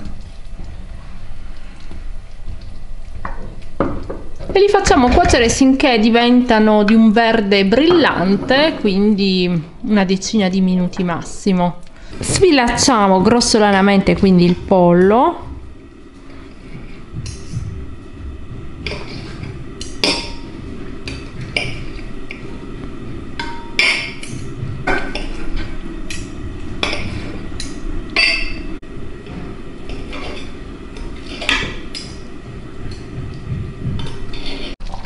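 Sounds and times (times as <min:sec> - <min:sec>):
low rumble: 0:12.2 - 0:29.8.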